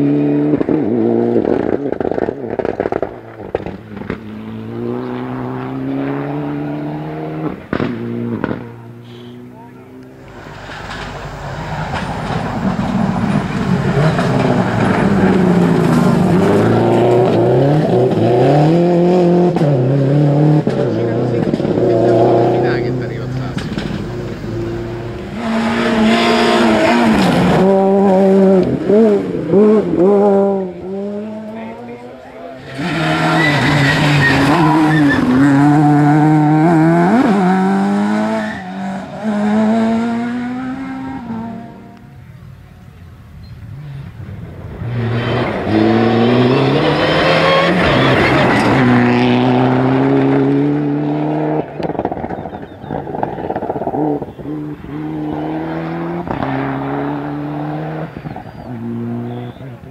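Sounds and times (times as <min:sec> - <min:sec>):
rally car engine passing: 0:00.0 - 0:59.9
gravel spraying from tyres: 0:10.3 - 0:16.4.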